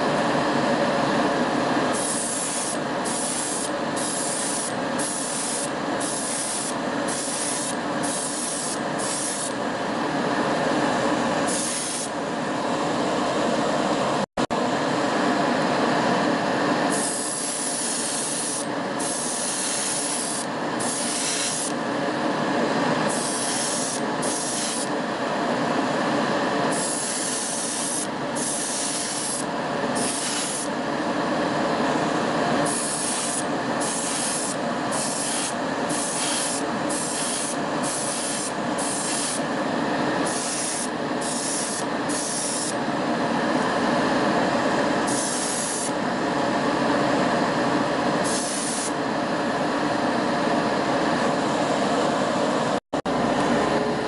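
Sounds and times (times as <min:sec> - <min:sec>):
spray bursts hissing: 0:32.7 - 0:39.4.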